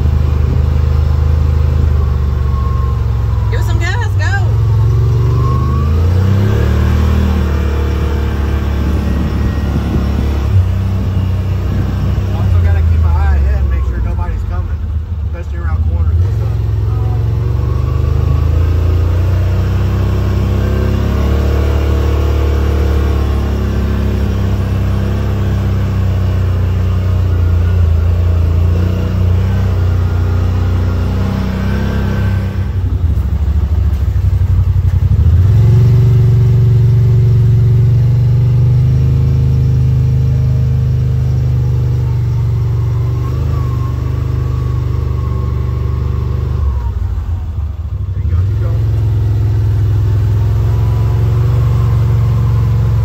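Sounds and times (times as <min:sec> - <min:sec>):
vehicle engine running: 0:00.0 - 0:53.0.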